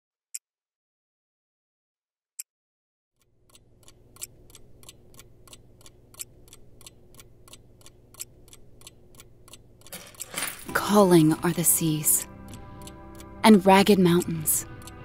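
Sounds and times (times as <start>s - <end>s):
mechanical clock ticking: 3.2s - 15.0s.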